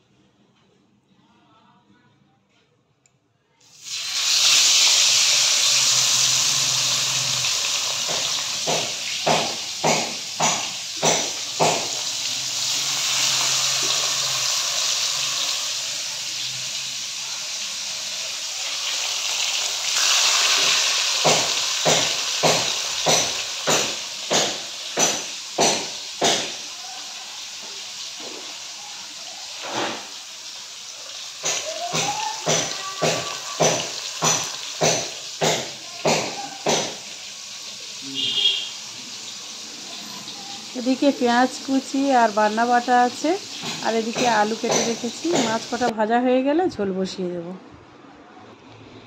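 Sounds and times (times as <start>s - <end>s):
fish sizzling in hot oil: 3.6s - 45.9s.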